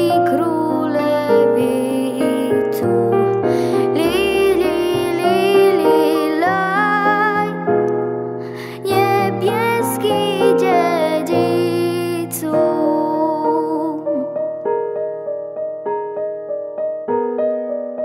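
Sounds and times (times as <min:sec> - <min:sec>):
girl singing a carol: 0:00.0 - 0:07.6, 0:08.6 - 0:14.4
soft piano accompaniment: 0:00.0 - 0:18.0.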